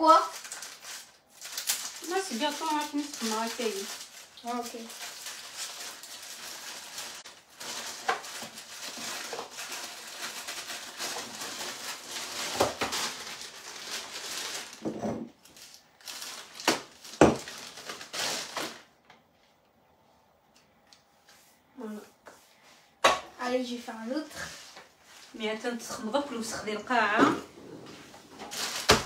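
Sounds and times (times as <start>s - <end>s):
rustling and crinkling: 0.0s - 19.8s, 23.6s - 29.0s.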